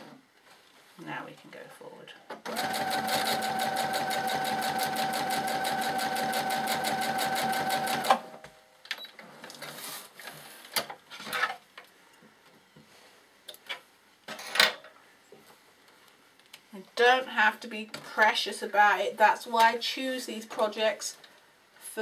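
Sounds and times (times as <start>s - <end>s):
sewing machine stitching: 2.5s - 8.2s.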